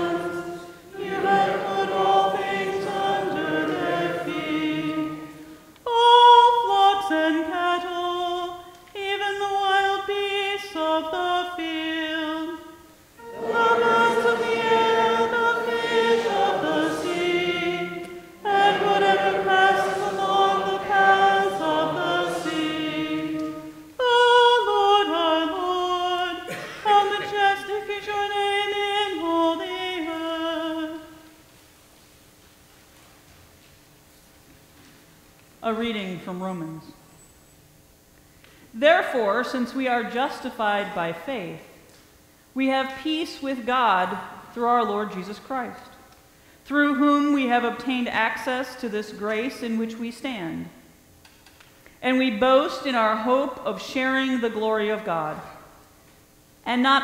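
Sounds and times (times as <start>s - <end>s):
congregation chanting unaccompanied: 0.0s - 5.7s, 13.2s - 27.8s.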